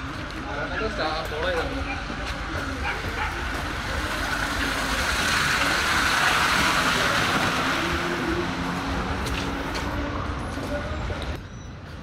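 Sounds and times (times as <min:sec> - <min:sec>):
car road rumble: 0:00.0 - 0:12.0
road hiss: 0:02.4 - 0:10.2.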